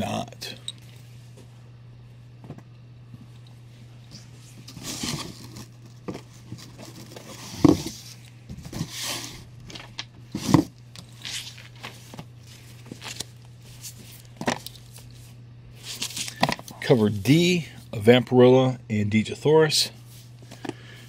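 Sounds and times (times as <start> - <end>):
comic books rustling in box: 4.2 - 16.9.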